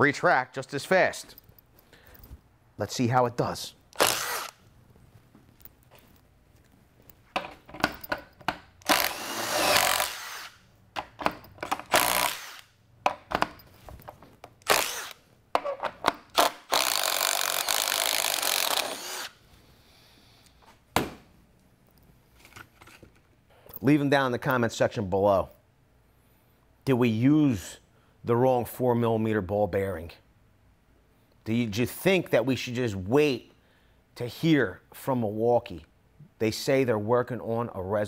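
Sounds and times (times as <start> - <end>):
impact driver running in bursts: 4.0 - 4.6, 8.8 - 10.6, 11.8 - 12.7, 14.7 - 15.2, 16.4 - 19.3.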